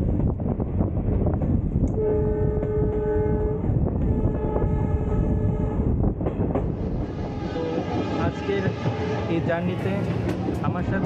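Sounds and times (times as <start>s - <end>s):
train wheels rumbling: 0.0s - 11.0s
locomotive horn blasts: 1.9s - 5.9s, 7.0s - 9.4s.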